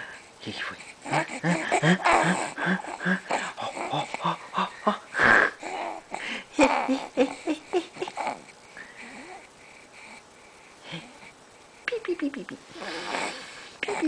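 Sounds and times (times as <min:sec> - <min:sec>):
baby grunting and cooing: 0:01.0 - 0:09.4, 0:12.8 - 0:14.0.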